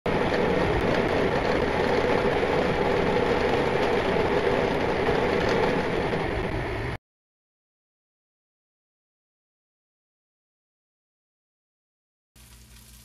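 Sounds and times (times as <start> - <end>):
electric grain mill grinding: 0.0 - 7.0.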